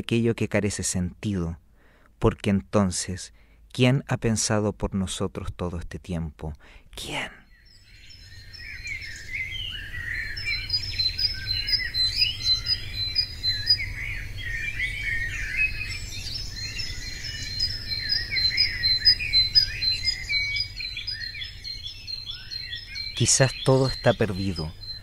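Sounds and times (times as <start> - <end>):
birds chirping and warbling: 7.0 - 25.0.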